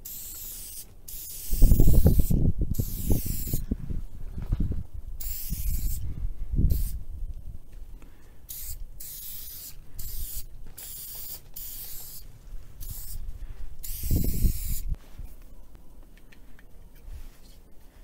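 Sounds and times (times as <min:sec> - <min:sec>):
spray paint can hissing: 0:00.0 - 0:03.6, 0:05.2 - 0:06.0, 0:06.7 - 0:07.0, 0:08.5 - 0:13.2, 0:13.8 - 0:15.0.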